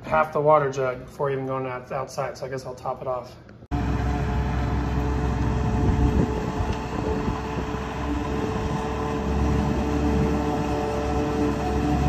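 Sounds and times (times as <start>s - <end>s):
engines running with low rumble: 3.7s - 12.0s
steady humming tones: 3.7s - 12.0s.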